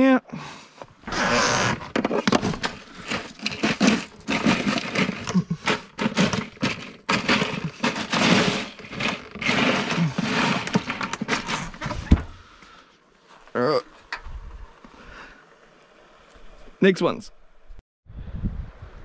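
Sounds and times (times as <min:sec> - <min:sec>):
rustling and scraping: 0:00.8 - 0:14.9
crab shells and ice clattering: 0:01.1 - 0:12.2.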